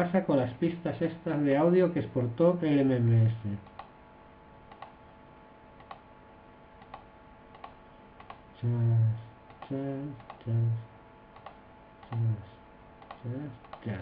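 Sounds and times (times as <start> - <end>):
computer mouse clicks: 3.6 - 4.0, 4.7 - 5.0, 5.8 - 6.1, 6.8 - 8.4, 9.5 - 10.5, 11.3 - 12.3, 13.0 - 14.0.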